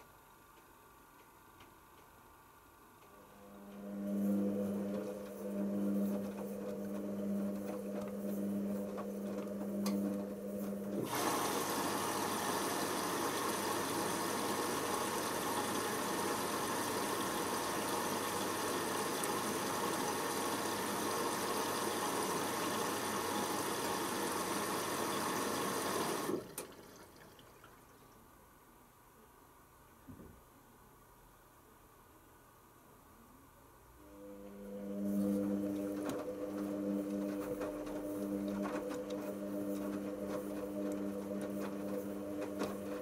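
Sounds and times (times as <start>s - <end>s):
washing machine motor hum: 3.0s - 28.3s, 34.0s - 43.0s
water rushing through inlet valve: 10.6s - 27.9s.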